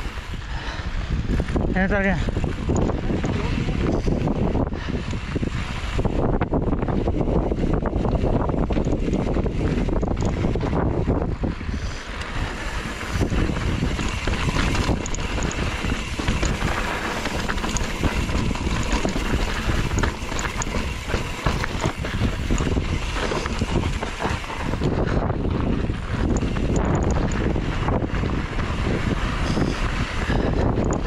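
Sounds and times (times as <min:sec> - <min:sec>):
trail rumble: 0:00.0 - 0:31.0
wind buffeting microphone: 0:00.0 - 0:31.0
small clicks and rattles: 0:01.8 - 0:04.4, 0:07.7 - 0:31.0.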